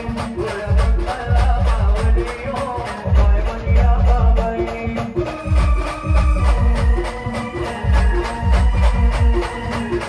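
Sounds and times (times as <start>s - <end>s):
electronic keyboard melody: 0.0s - 10.0s
live band music: 0.0s - 10.0s
heavy bass drum hits: 0.2s - 4.9s.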